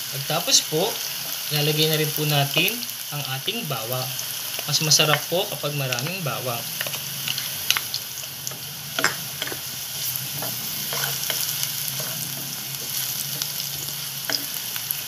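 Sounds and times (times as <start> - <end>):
onion sizzling in hot oil: 0.0 - 15.0
wooden spatula scraping a pan: 9.0 - 14.7.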